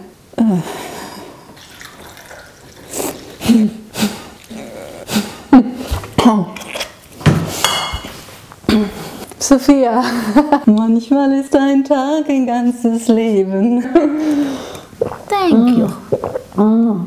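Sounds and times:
wine poured into a glass: 1.6s - 2.9s
gulping from a bottle: 1.7s - 5.4s, 14.9s - 16.6s.

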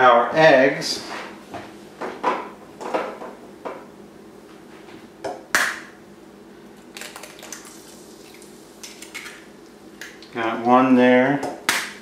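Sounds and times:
egg cracking: 6.8s - 10.3s.

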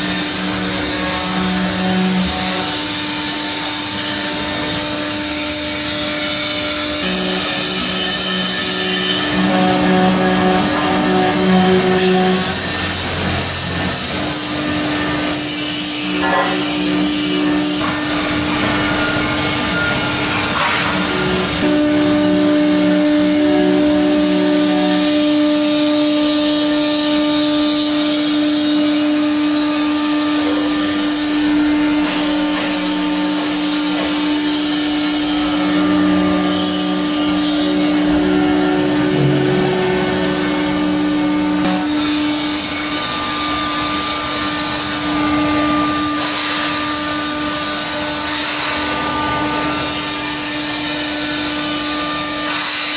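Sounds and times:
router spindle hum with cutting: 0.0s - 52.9s
low motor tones: 16.0s - 46.1s.

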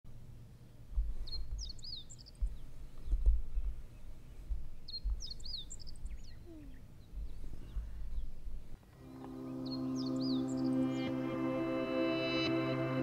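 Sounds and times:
songbird singing: 0.1s - 13.0s
wind buffeting microphone: 0.8s - 8.9s.

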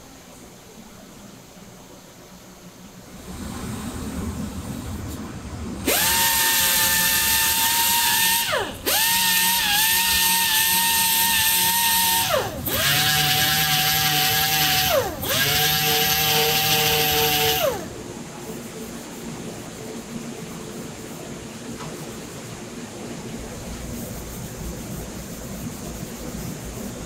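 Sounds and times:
air sander whining on plastic: 5.1s - 18.0s.

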